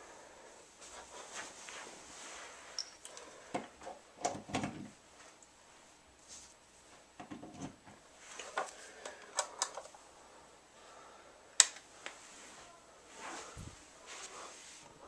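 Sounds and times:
light clicks and taps of handling: 8.4s - 10.0s.

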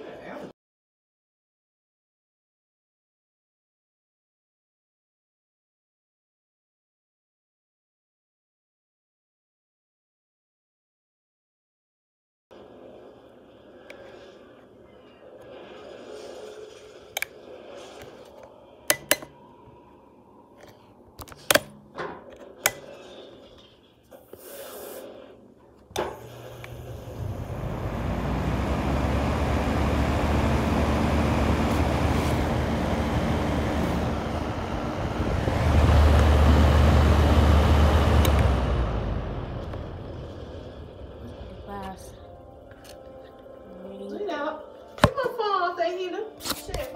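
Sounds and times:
heater fan whoosh: 26.0s - 42.2s
low motor hum: 26.1s - 44.1s
heater switch clicks: 38.2s - 38.5s.

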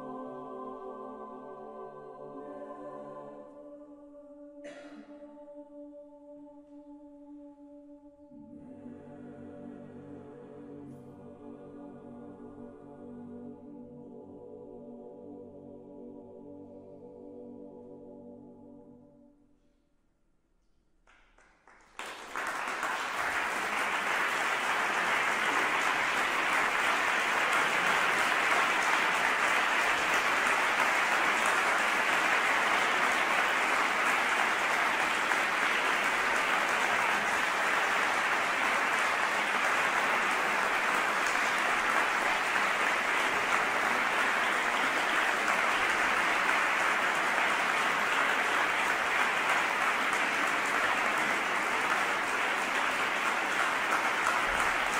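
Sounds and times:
audience applauding: 21.1s - 54.9s.

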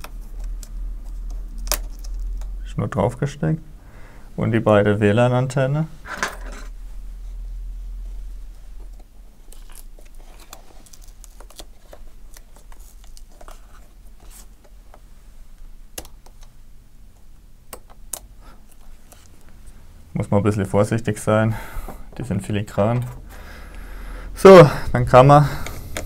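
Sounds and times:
low hum: 0.0s - 9.9s.

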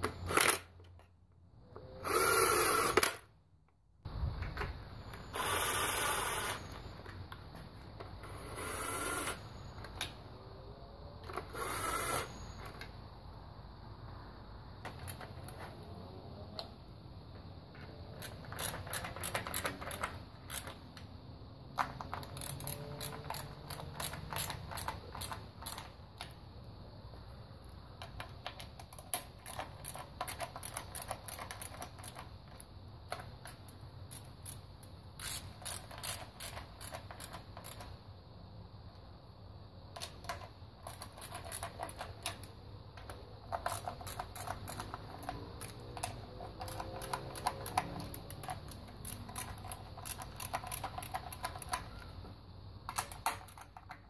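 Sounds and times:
hand ratchet clicking: 21.8s - 25.9s, 35.2s - 37.9s, 43.5s - 51.9s.

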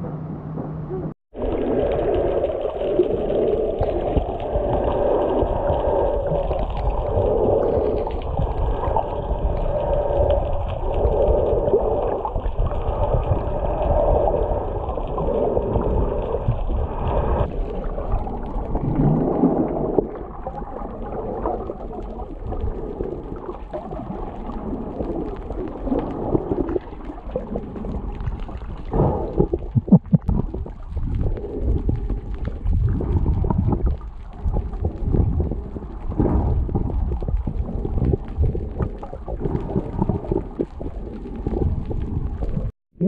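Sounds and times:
underwater rumble of moving water: 0.0s - 43.0s.

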